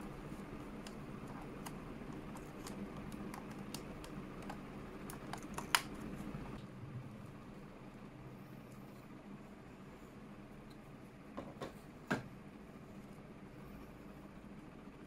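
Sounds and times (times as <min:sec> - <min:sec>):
plastic tab snapping: 0:01.6 - 0:05.9.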